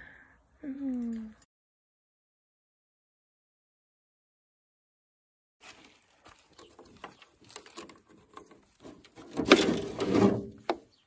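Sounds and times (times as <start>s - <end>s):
plastic bottles clicking and knocking: 6.4s - 10.9s.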